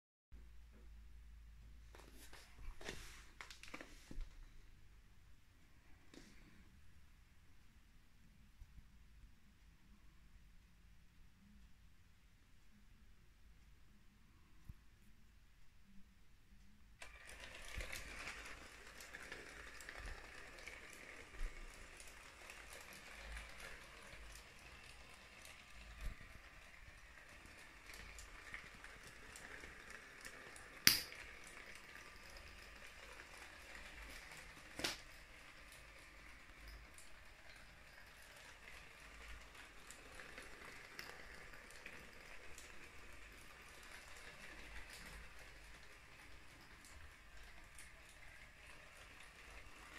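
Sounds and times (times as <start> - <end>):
toy train motor running: 17.0 - 49.9.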